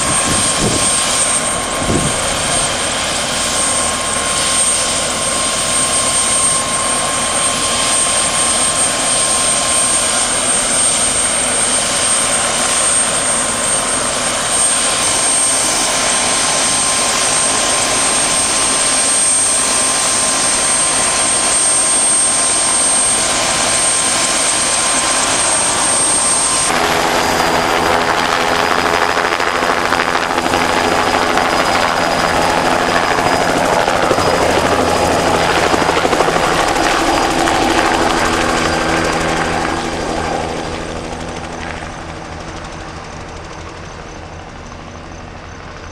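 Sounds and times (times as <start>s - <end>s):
helicopter flying: 0.0s - 45.9s.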